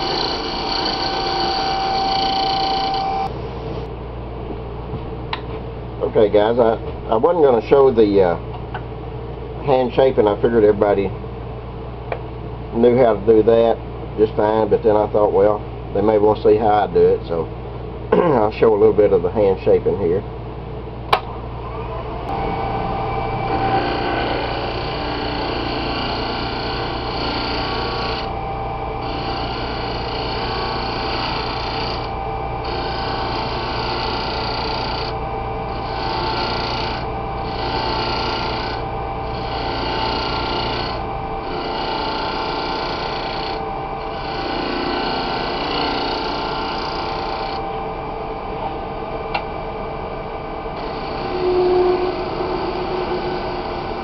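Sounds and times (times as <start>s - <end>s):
turning tool cutting wood: 0.0s - 3.3s, 23.5s - 28.3s, 29.0s - 47.6s, 50.8s - 54.0s
lathe humming and whining: 0.0s - 3.9s, 21.4s - 54.0s.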